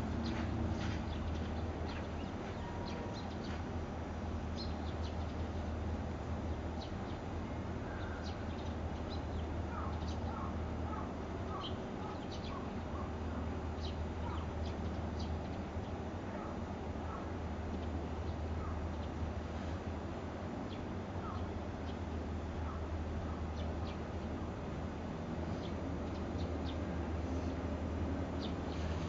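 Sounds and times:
steady low hum: 0.0s - 29.0s
small birds chirping: 0.1s - 3.7s, 4.6s - 5.8s, 25.5s - 27.6s.

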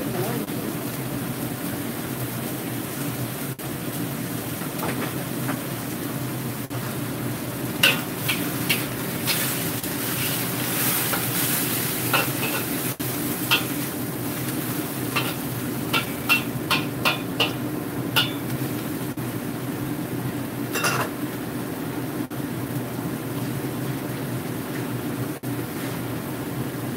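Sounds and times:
vegetables sizzling: 0.0s - 26.9s
metal spatula scraping a wok: 7.9s - 12.9s.

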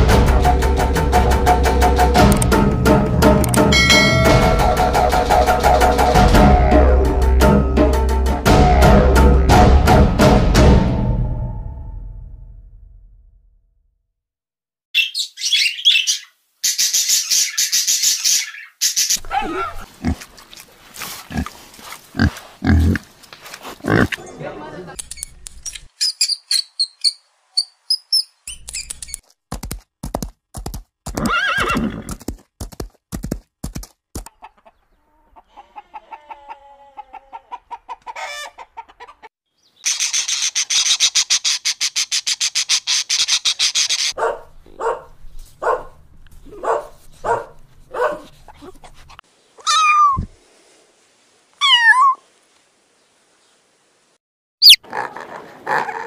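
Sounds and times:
animal calls: 18.4s - 20.2s, 49.6s - 50.3s, 51.6s - 52.2s, 54.6s - 56.0s.

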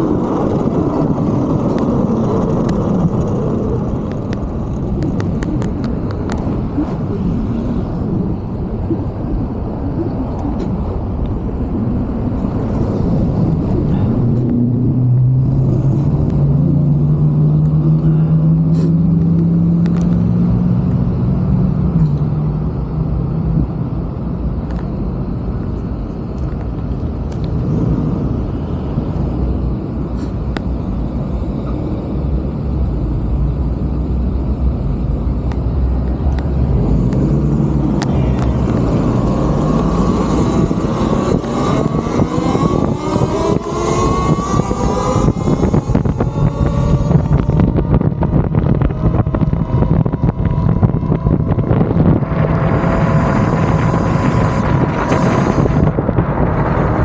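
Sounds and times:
traffic hum: 0.0s - 57.0s
wind on microphone: 0.0s - 57.0s
electric motorbike motor whine: 31.4s - 57.0s.

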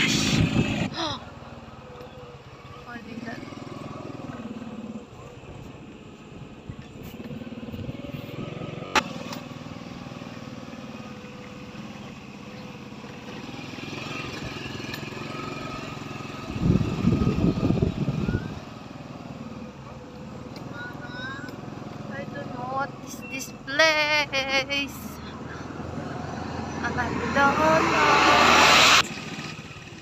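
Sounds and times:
loud rough rumble: 0.0s - 22.4s
motorcycle engine running: 0.0s - 25.6s, 26.5s - 30.0s.

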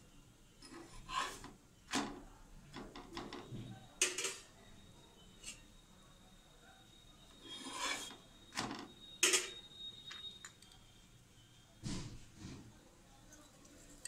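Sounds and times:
spatula scraping frying pan: 0.6s - 1.6s, 7.4s - 8.2s.

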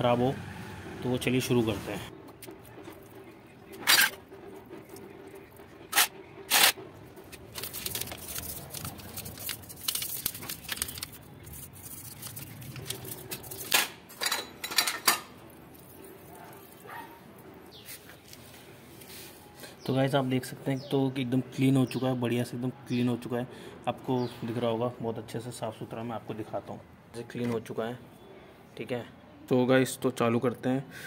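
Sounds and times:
toothbrush scrubbing wet parts: 7.5s - 13.6s.

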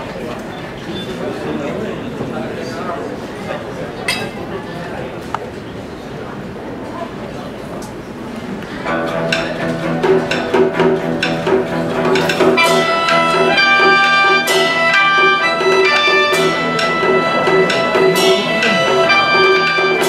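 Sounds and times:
guzheng plucked notes: 8.8s - 20.0s
sheng: 8.8s - 20.0s
erhu: 9.0s - 20.0s.

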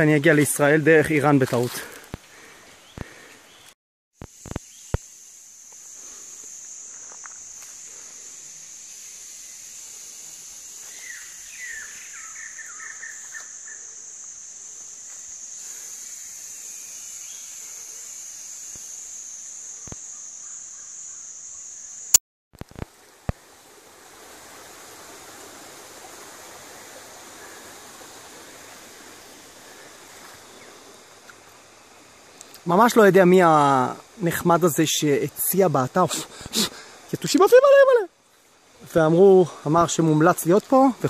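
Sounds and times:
insects high-pitched whine: 0.0s - 41.0s
bird chirps: 10.9s - 13.8s
stream water rushing: 23.0s - 32.2s.

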